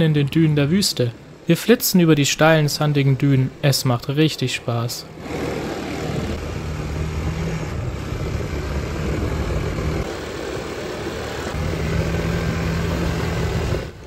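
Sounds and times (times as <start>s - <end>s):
quad bike engines revving: 5.1s - 14.0s.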